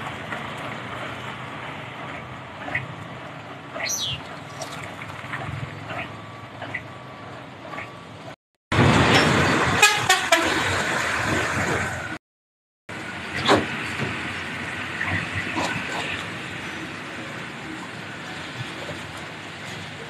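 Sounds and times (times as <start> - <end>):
trucks and motorbikes passing: 0.0 - 12.2, 12.9 - 20.0
vehicle horn: 9.8 - 10.6.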